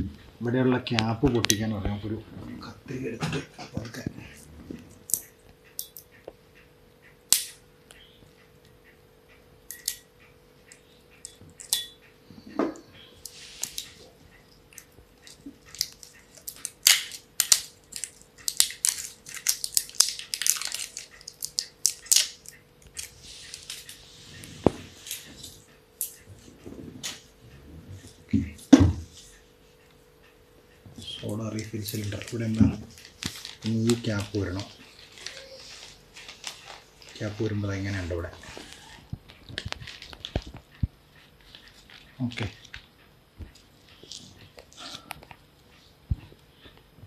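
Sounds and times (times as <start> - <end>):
scissors snipping foil: 14.8 - 24.0
foil crinkling and tearing: 15.7 - 24.0, 31.6 - 38.8, 39.5 - 40.5.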